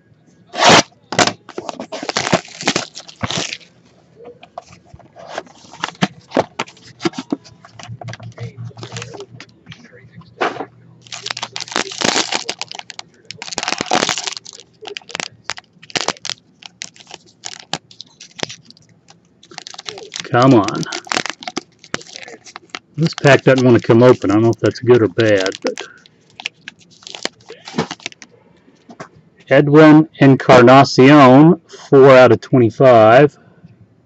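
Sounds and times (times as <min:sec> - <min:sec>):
plastic shrink wrap crackling and tearing: 0:00.6 - 0:03.7, 0:04.6 - 0:09.5, 0:11.0 - 0:28.3.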